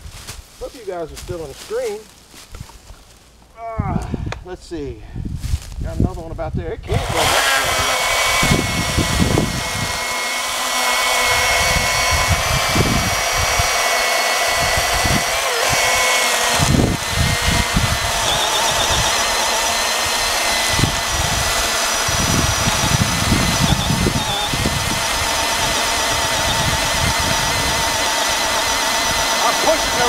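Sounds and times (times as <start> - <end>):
electric chainsaw cutting log: 6.8 - 30.0.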